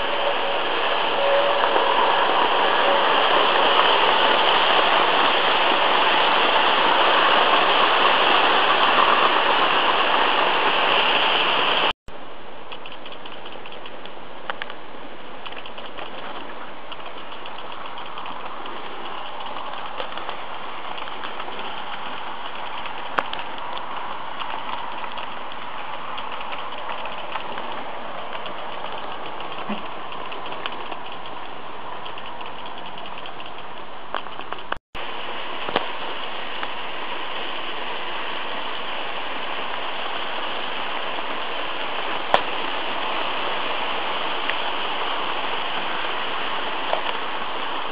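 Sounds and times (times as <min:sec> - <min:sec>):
wheels rattling on rails: 0:00.0 - 0:11.9, 0:12.6 - 0:47.9
sharp clicks: 0:12.7 - 0:14.8, 0:15.4 - 0:34.8
model train motors whirring: 0:15.4 - 0:34.8.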